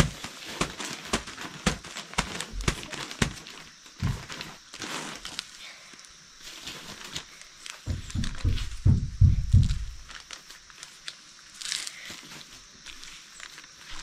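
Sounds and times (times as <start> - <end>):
soil and plastic rustling: 0.0 - 14.0
low dull thuds: 7.9 - 10.1.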